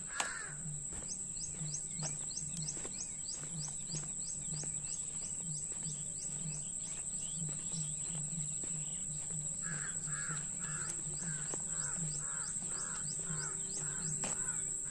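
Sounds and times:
crow cawing: 0.0 - 1.6, 9.2 - 14.9
high insect drone: 0.0 - 14.9
low regular throbbing: 0.0 - 14.9.

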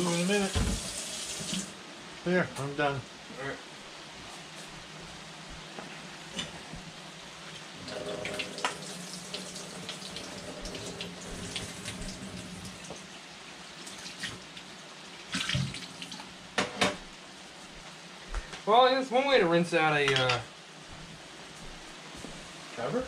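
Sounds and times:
faucet running into a sink: 0.0 - 1.7, 7.8 - 13.0.

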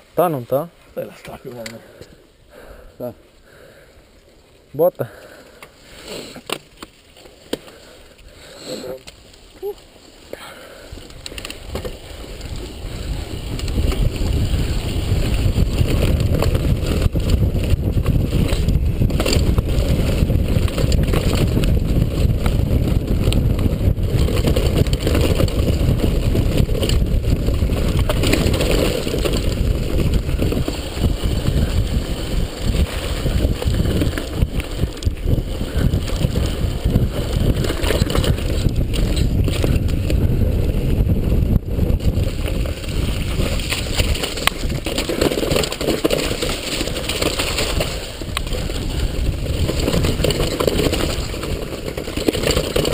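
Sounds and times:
mountain bike rattling over trail: 0.0 - 52.9
wind buffeting microphone: 10.9 - 52.9.

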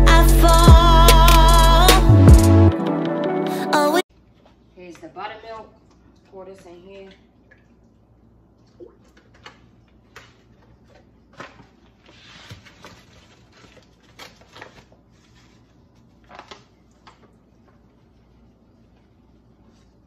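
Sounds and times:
paper bag rustling: 11.4 - 17.3.

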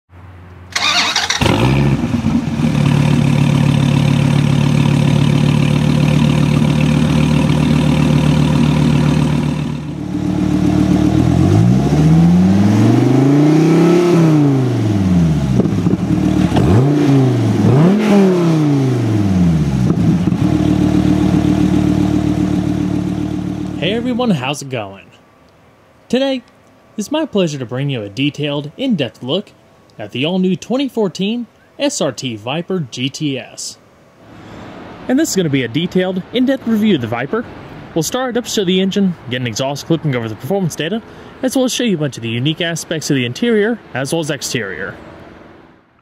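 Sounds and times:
car engine starting and idling: 0.6 - 24.5
car engine revving: 0.7 - 24.4.

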